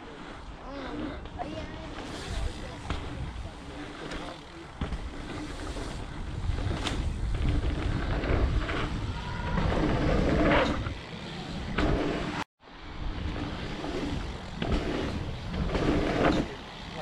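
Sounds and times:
bike tyres on dirt: 0.0 - 17.0
bike knocks: 1.9 - 3.4, 4.0 - 10.0
wind buffeting microphone: 4.7 - 16.3.

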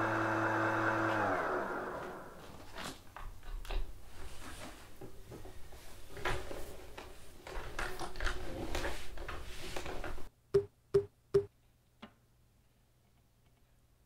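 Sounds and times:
plastic mop rustling and clicking: 2.1 - 10.3.

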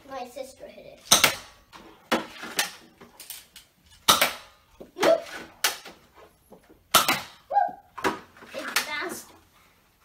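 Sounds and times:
darts smacking into things: 1.0 - 2.8, 4.0 - 6.0, 6.9 - 9.1.

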